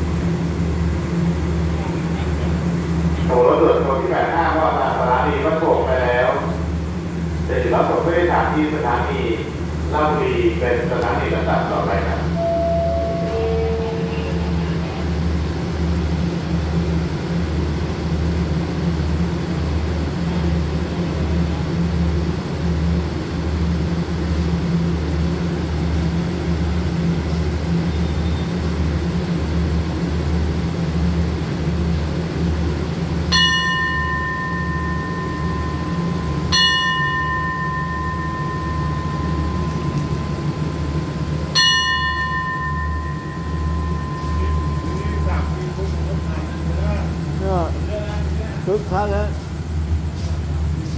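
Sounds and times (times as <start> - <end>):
diesel train throbbing: 0.0 - 50.9
bell ringing: 12.3 - 14.8, 33.3 - 46.9.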